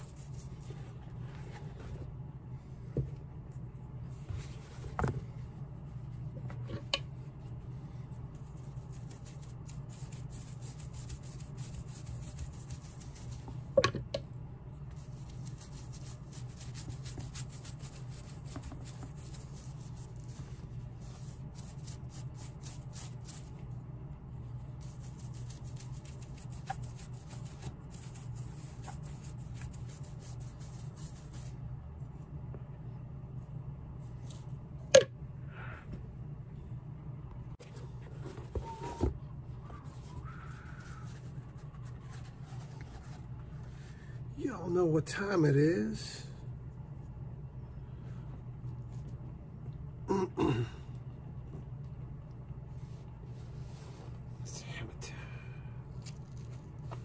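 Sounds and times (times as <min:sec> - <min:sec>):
steady low hum: 0:00.0 - 0:57.0
scratchy rubbing on leather: 0:08.5 - 0:13.5, 0:14.9 - 0:23.6, 0:24.8 - 0:31.5.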